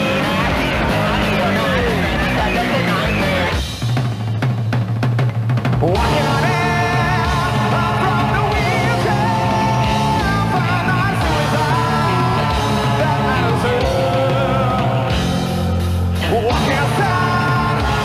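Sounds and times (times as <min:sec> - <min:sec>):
voices singing harmony: 0:00.0 - 0:03.5, 0:05.8 - 0:18.0
electric guitar: 0:00.0 - 0:04.5, 0:05.6 - 0:18.0
bass: 0:00.0 - 0:18.0
keyboards: 0:00.0 - 0:18.0.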